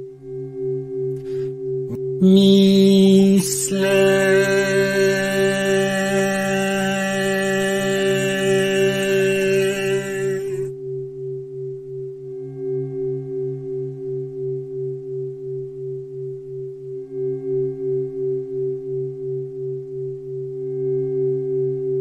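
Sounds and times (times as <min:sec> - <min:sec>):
faint higher tones: 0:01.2 - 0:10.7
low pulsing drone tones: 0:01.8 - 0:10.7.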